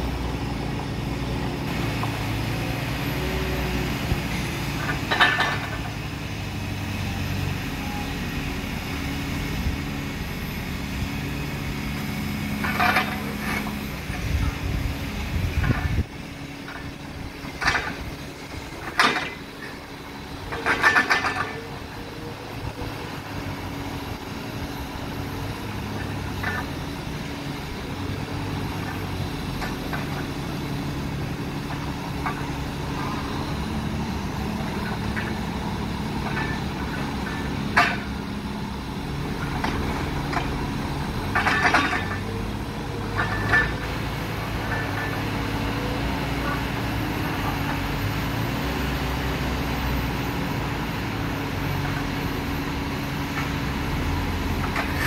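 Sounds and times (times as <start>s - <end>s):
loader diesel engine running: 0.0s - 55.0s
metal bucket clanks and scrapes: 41.3s - 42.4s, 43.1s - 43.9s.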